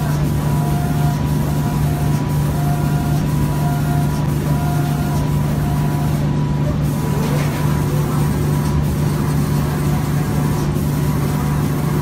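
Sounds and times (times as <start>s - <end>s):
loud steady machine hum: 0.0s - 12.0s.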